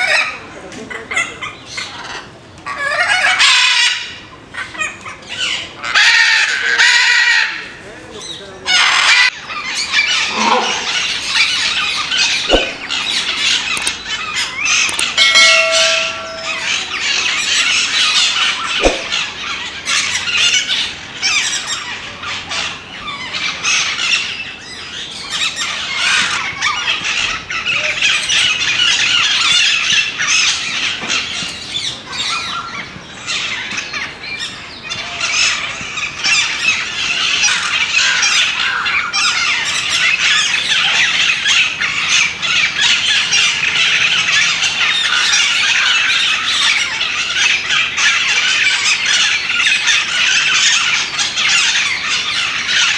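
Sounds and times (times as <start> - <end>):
parrots squawking: 8.7 - 21.8.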